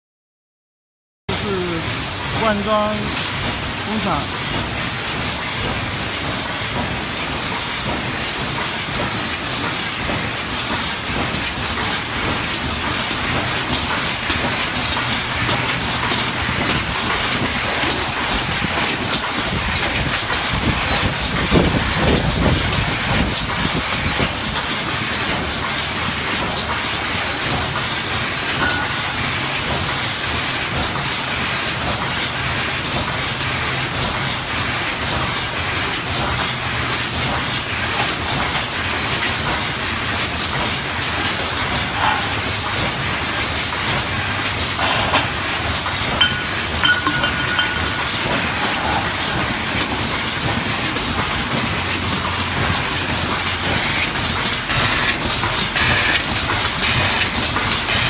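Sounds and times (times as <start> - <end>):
aerosol cans rattling together: 46.2 - 49.2.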